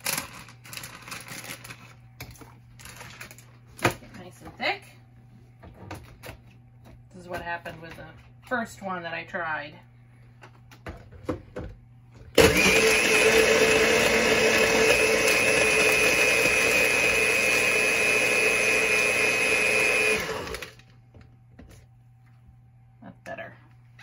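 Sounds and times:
blender crushing ice: 0.0 - 1.8, 12.4 - 20.9.

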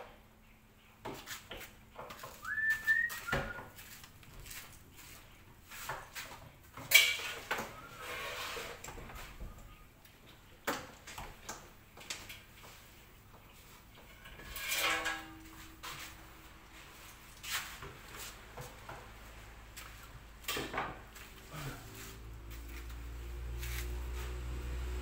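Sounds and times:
tools and parts clattering: 6.7 - 7.8, 14.0 - 16.1.

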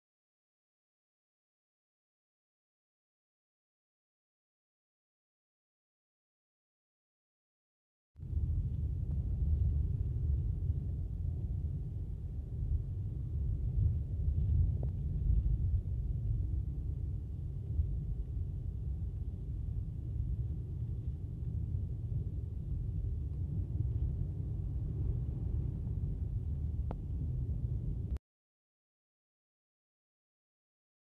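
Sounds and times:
car driving on snowy road: 8.3 - 28.2.

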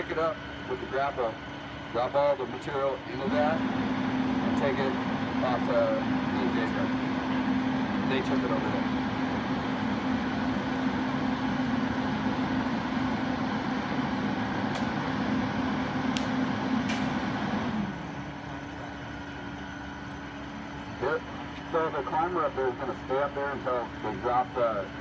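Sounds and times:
heavy machinery engine running: 0.0 - 25.0.

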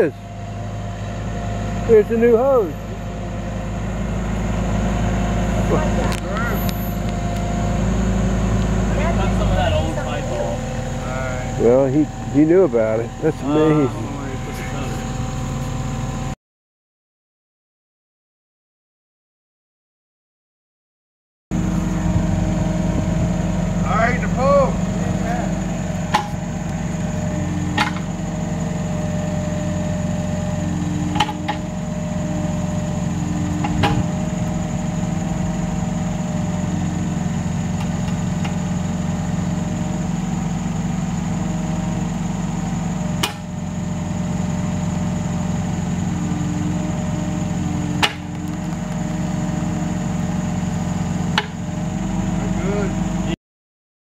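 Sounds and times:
excavator engine running: 0.0 - 16.4, 21.5 - 53.4
higher hum: 0.2 - 16.4
sharp knocks: 26.1 - 26.4, 27.7 - 28.1, 43.2 - 43.5, 48.0 - 48.9.

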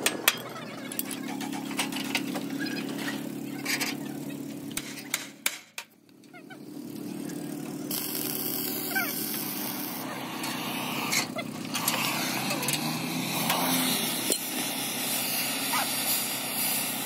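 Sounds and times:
motor hum: 0.0 - 17.0
loud hiss: 7.9 - 17.0.

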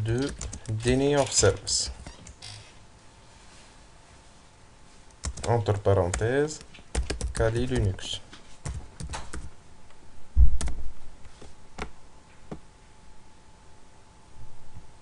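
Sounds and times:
keyboard keystrokes: 0.2 - 1.0, 5.2 - 8.0, 8.6 - 9.5.

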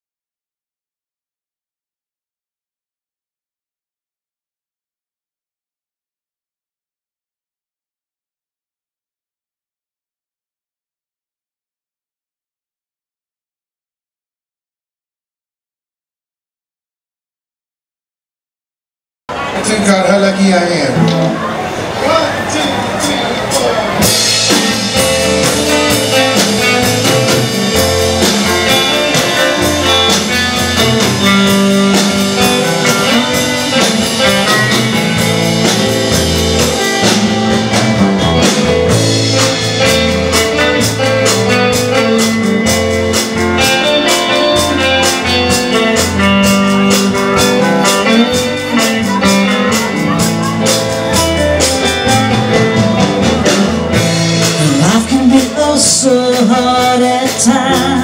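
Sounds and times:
electric guitars: 19.3 - 58.0
drum kit beat: 23.0 - 58.0
low bass line: 23.9 - 58.0.

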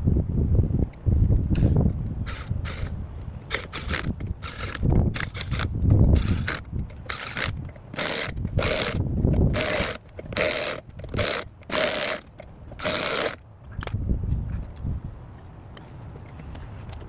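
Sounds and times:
electric impact wrench bursts: 3.5 - 13.4.

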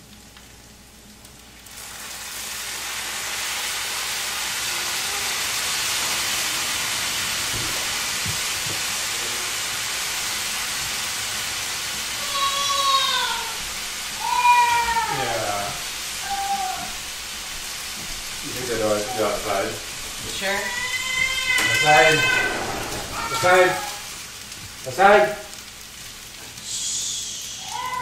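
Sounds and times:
rice and eggs sizzling in frying pan: 0.0 - 28.0
sauce poured onto hot pan: 1.4 - 12.1
cat meowing: 12.2 - 13.6, 14.2 - 17.0, 20.5 - 24.1, 27.6 - 28.0.

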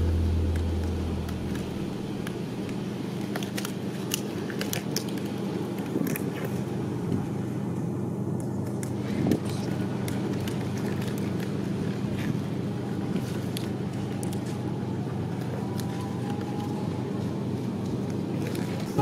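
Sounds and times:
low engine-like hum: 0.0 - 19.0
gloves rustling and snapping: 0.6 - 6.6.

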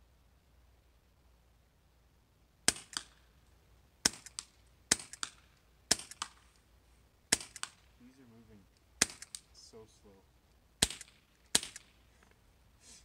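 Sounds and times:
air pistol shots: 2.7 - 3.2, 4.0 - 6.4, 7.3 - 7.9, 9.0 - 9.5, 10.8 - 12.0.

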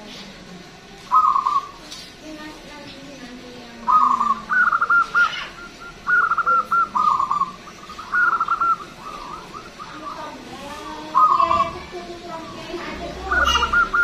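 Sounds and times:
dove cooing: 1.1 - 1.9, 3.7 - 14.0.

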